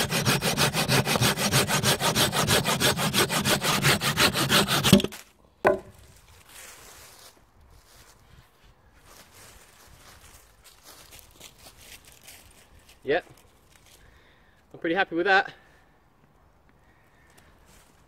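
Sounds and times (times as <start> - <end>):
saw cutting branch: 0.0 - 5.2.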